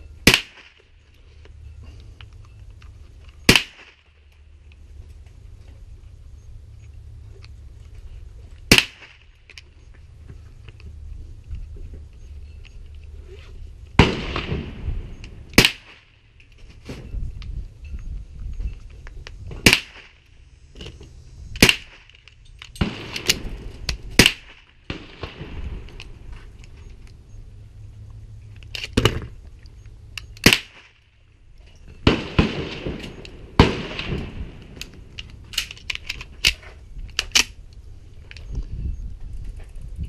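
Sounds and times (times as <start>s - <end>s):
pistol gunshots: 0.2s - 0.8s, 3.5s - 4.0s, 8.7s - 9.2s, 14.0s - 16.1s, 19.6s - 20.2s, 21.6s - 22.1s, 22.8s - 26.0s, 30.4s - 31.0s, 32.0s - 34.8s.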